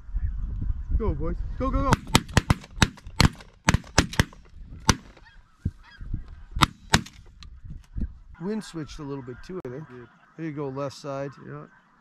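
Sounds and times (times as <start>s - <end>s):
shotgun volley: 1.9s - 5.3s, 6.6s - 7.3s.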